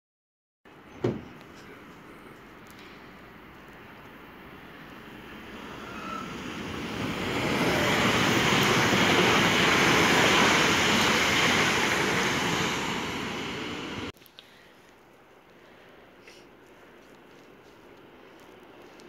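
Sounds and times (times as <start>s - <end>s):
electric train passing at speed: 2.7s - 14.1s.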